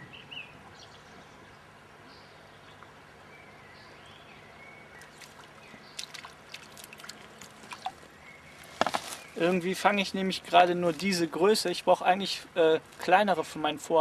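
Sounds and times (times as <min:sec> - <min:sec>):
fish splashing at water surface: 0:05.0 - 0:08.1.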